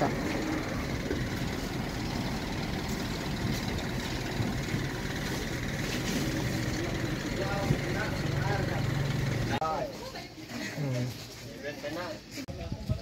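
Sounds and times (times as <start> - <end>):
vehicle engine idling: 0.0 - 9.8.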